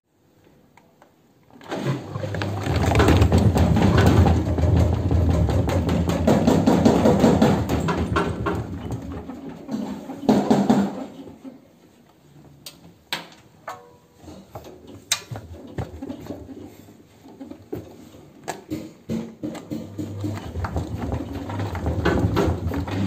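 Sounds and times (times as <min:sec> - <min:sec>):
washing machine drum banging: 0:02.1 - 0:09.5, 0:19.1 - 0:23.0.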